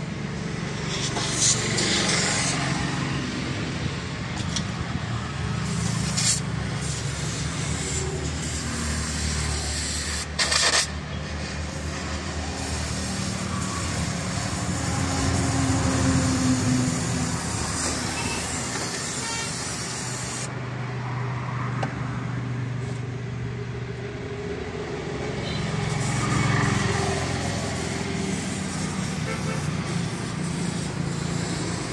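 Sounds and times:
vehicle engines passing: 0:00.0 - 0:31.9
loud burst of noise: 0:05.0 - 0:20.5, 0:25.7 - 0:31.9.

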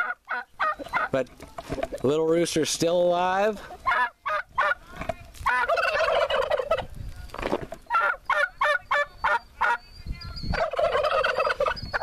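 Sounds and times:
turkey gobbling: 0:00.0 - 0:02.1, 0:03.5 - 0:04.8, 0:05.4 - 0:06.9, 0:07.8 - 0:09.9, 0:10.5 - 0:12.0.

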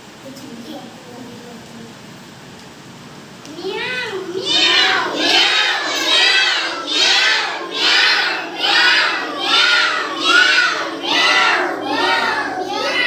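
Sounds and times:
children calling in unison: 0:03.4 - 0:13.0.

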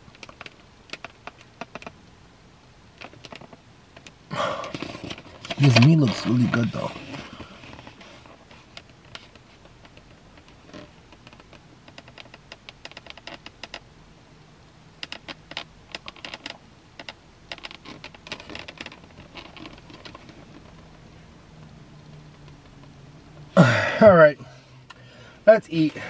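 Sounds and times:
foam containers creaking and clicking: 0:00.0 - 0:02.0, 0:03.0 - 0:13.9, 0:15.0 - 0:21.3.

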